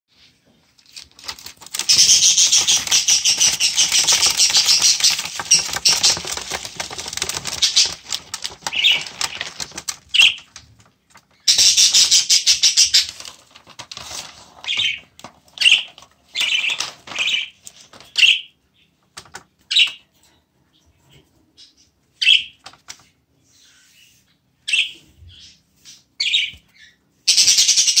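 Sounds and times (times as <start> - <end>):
bird wings flapping: 1.2 - 11.2
bird chirping: 1.4 - 10.6, 11.2 - 13.4, 14.6 - 28.0.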